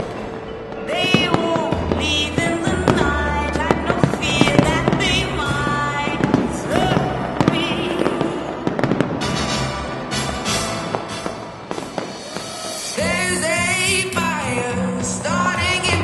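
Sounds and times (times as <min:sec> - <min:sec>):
fireworks bangs and crackles: 0:00.0 - 0:16.0
loud music with bass: 0:00.9 - 0:16.0.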